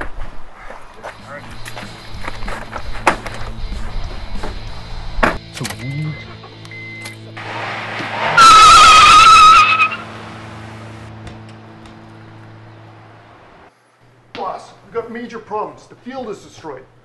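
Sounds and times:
car engine starting and revving: 7.2s - 13.5s
tires squealing: 7.3s - 13.1s.

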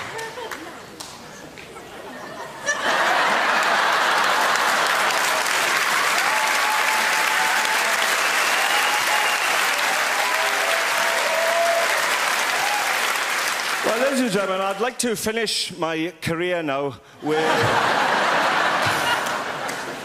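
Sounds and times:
audience applauding: 2.8s - 14.8s, 17.7s - 20.0s.

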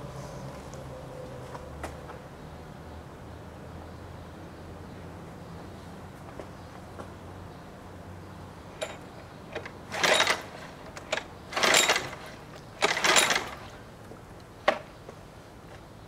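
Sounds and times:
recoil starter cord whirring: 8.8s - 13.8s.

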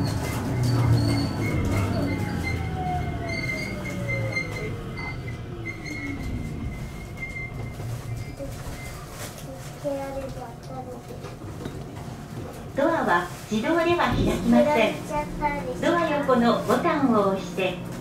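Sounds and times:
traction motor whine: 0.0s - 9.2s
wheels rumbling on rails: 0.0s - 18.0s.

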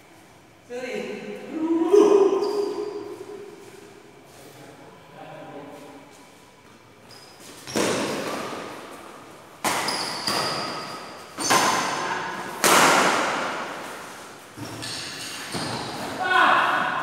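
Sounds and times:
rackets hitting shuttlecock: 7.6s - 13.9s.

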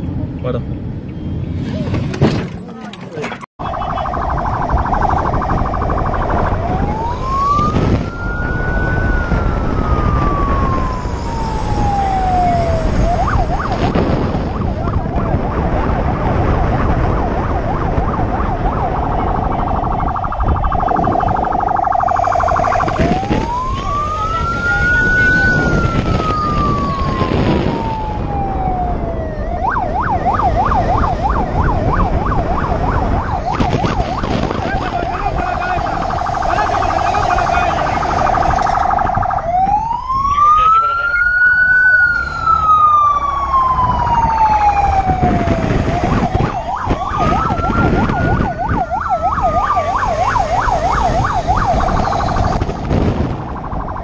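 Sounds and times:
police siren wailing: 3.6s - 54.0s
rushing ride noise: 30.0s - 39.5s.

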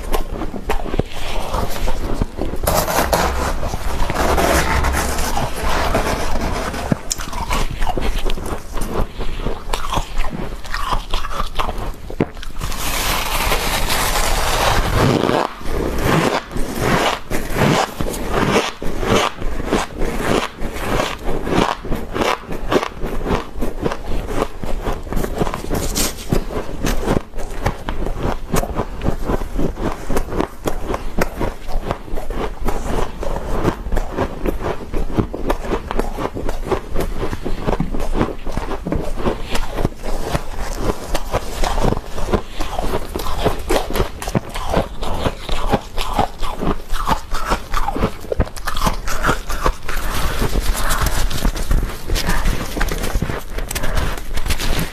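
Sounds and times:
crunching and chewing: 0.0s - 3.1s, 6.1s - 54.9s
spoon scraping frost: 1.1s - 10.1s.

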